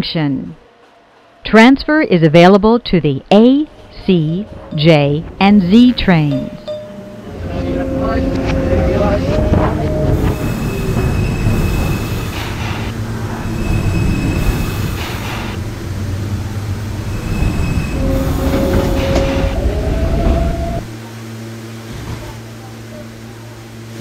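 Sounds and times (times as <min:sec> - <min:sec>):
subway train rumbling on rails: 0:00.0 - 0:24.0
wheel squeal: 0:07.6 - 0:15.4, 0:17.0 - 0:20.9.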